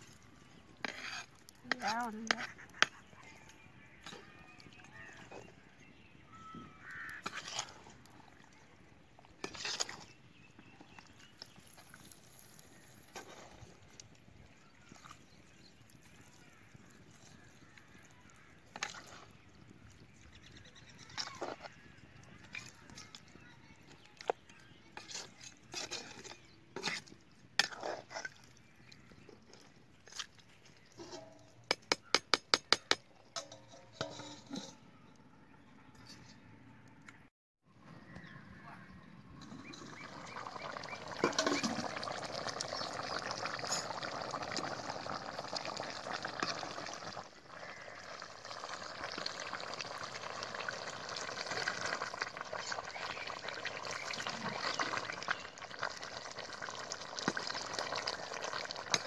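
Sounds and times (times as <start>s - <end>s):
metal spatula scraping iron pan: 0.8s - 3.0s, 6.9s - 7.8s, 31.0s - 31.5s, 32.7s - 34.9s
ladle scraping a metal pan: 0.8s - 3.1s, 6.8s - 8.0s, 9.4s - 10.2s, 25.0s - 28.6s, 30.8s - 31.7s, 32.7s - 34.9s, 39.4s - 44.3s, 57.2s - 59.0s.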